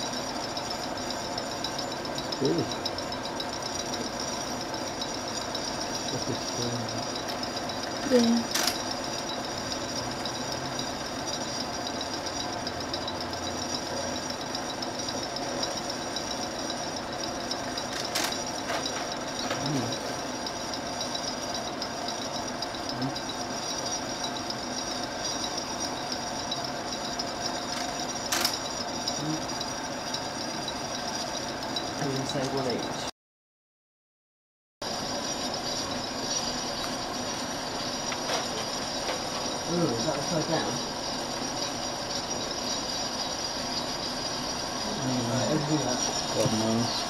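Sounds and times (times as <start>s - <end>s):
film projector running: 0.0s - 33.1s, 34.8s - 47.0s
sharp click: 8.5s - 8.8s, 27.7s - 28.6s.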